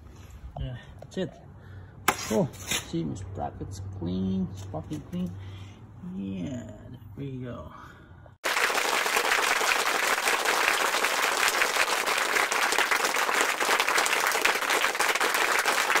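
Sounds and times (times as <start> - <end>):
crowd applause: 8.4 - 16.0.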